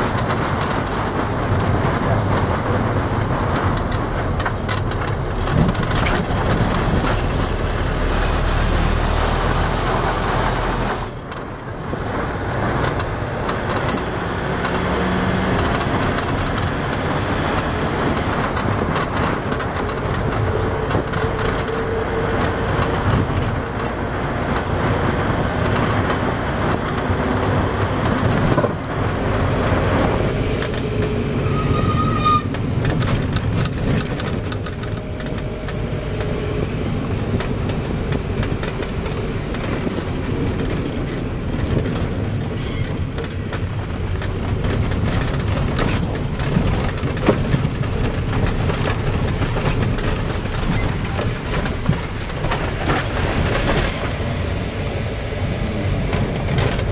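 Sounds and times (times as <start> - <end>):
small clicks and rattles: 0.0 - 2.5, 3.5 - 11.5, 12.7 - 14.9, 15.5 - 31.2, 32.5 - 36.4, 37.2 - 54.2
vehicle road and engine rumble: 0.0 - 56.9.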